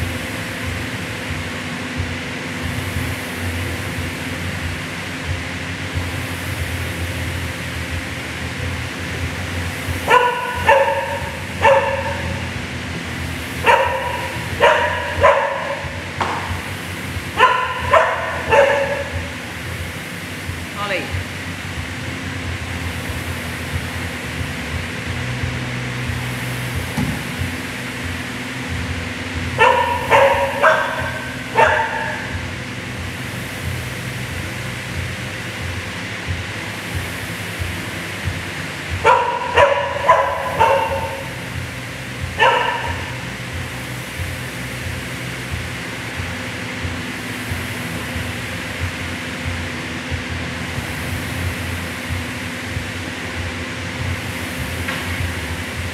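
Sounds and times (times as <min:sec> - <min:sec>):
fan whirring: 0:00.0 - 0:55.9
dog barking: 0:10.0 - 0:12.5, 0:13.6 - 0:16.6, 0:17.4 - 0:19.4, 0:29.6 - 0:32.4, 0:39.0 - 0:41.6, 0:42.2 - 0:43.3.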